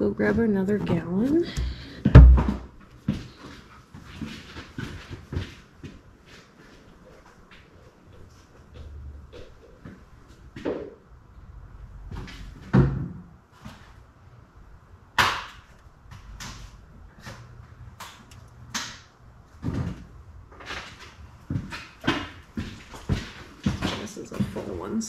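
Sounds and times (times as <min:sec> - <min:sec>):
objects knocking and thumping: 0:00.2 - 0:06.0, 0:12.1 - 0:13.9, 0:15.2 - 0:24.9.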